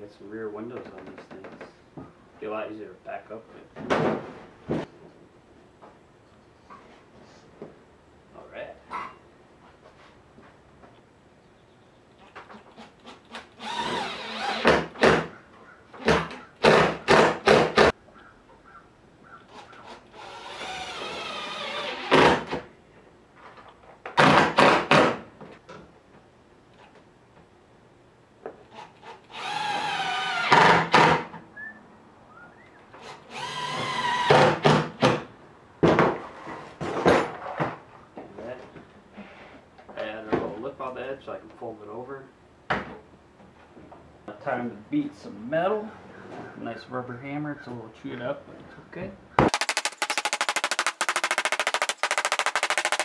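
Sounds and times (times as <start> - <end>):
cordless drill drilling into metal: 13.1 - 15.0, 20.1 - 22.4, 28.8 - 31.1, 33.0 - 34.6.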